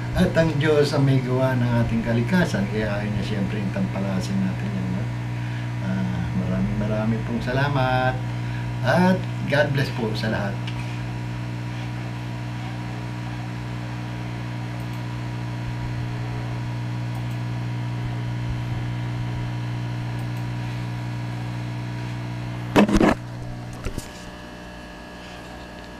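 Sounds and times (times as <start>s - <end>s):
steady low hum: 0.0s - 25.9s
camera handling knock and rustle: 22.8s - 23.2s.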